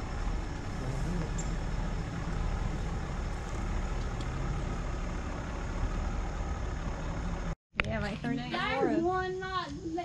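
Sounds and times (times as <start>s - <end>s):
tires rolling over grass: 0.0s - 7.6s
truck engine rumble: 0.0s - 8.3s.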